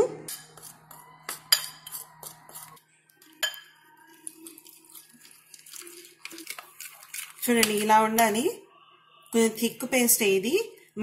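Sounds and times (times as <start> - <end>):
metal spoon stirring flour: 0.2 - 8.4
spoon clinking against bowl: 0.3 - 8.4.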